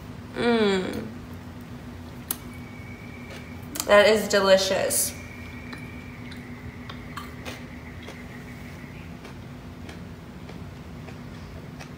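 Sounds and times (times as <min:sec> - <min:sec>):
steady low hum: 0:00.0 - 0:11.9
chewing crunchy food: 0:05.3 - 0:11.9.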